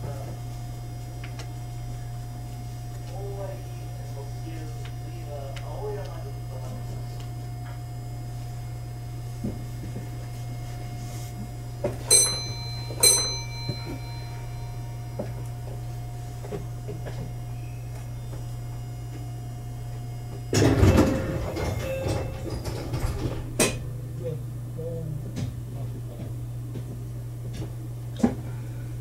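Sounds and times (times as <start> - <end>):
train equipment hum: 0.0 - 28.8
sliding doors closing with thud: 20.5 - 23.6.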